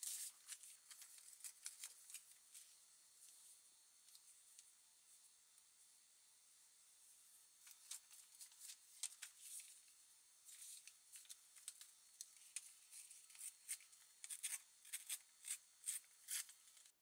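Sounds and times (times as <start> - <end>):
paper tearing and crinkling: 0.0 - 2.5, 10.5 - 16.9.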